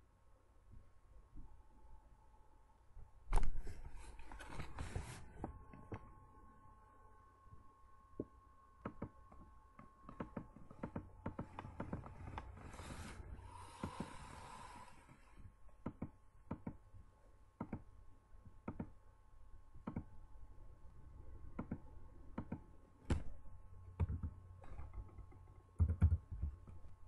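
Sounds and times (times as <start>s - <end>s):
faint electrical whine and hum: 0.0s - 27.0s
computer mouse clicking: 8.8s - 9.1s, 9.8s - 13.1s, 15.8s - 16.8s, 17.6s - 17.9s, 18.6s - 19.0s, 19.8s - 20.1s, 21.5s - 23.2s, 24.0s - 26.9s.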